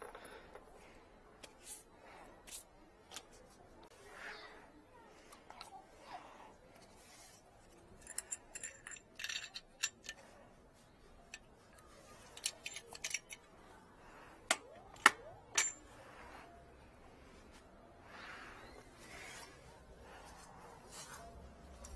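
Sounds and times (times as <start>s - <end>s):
small metal clicks and clinks: 7.7s - 10.3s, 12.2s - 13.5s.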